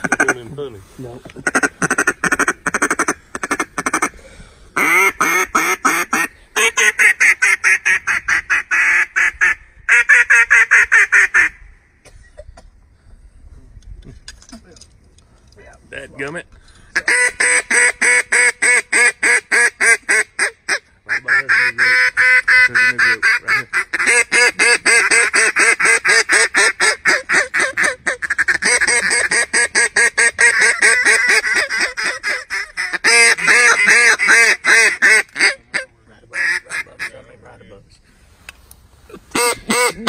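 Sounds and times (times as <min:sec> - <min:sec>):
duck call rapid quacks: 0:00.0 - 0:00.4, 0:01.4 - 0:04.1, 0:04.8 - 0:11.6, 0:17.0 - 0:37.1, 0:39.3 - 0:40.0.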